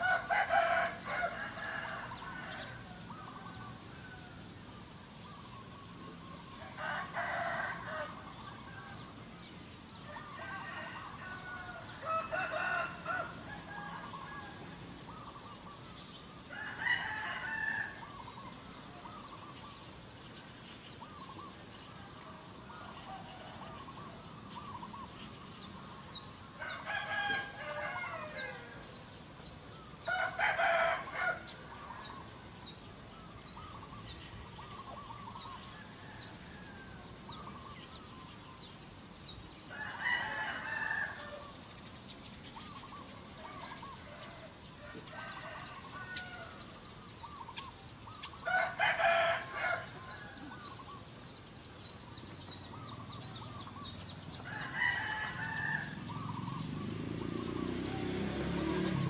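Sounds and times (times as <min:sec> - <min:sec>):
roosters crowing: 0:00.0 - 0:04.7, 0:06.1 - 0:09.3, 0:10.0 - 0:19.5, 0:21.0 - 0:29.2, 0:29.8 - 0:32.5, 0:33.2 - 0:38.1, 0:39.6 - 0:41.8, 0:42.8 - 0:51.0, 0:52.6 - 0:59.0.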